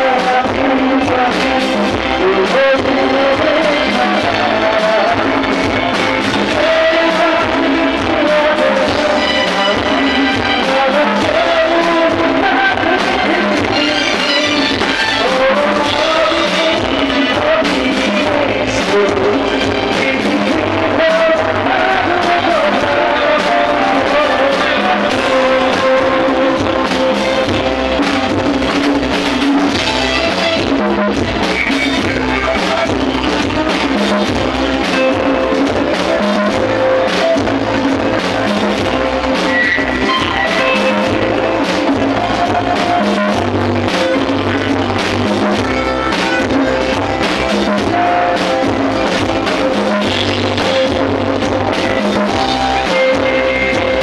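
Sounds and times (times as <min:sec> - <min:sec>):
bass guitar: 0:00.0 - 0:54.0
congas: 0:00.0 - 0:54.0
electric guitar: 0:00.0 - 0:54.0
keyboard: 0:00.0 - 0:54.0.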